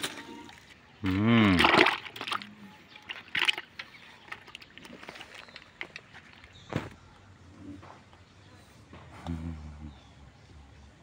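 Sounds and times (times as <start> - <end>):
fish splashing in plastic bucket: 1.4 - 6.5.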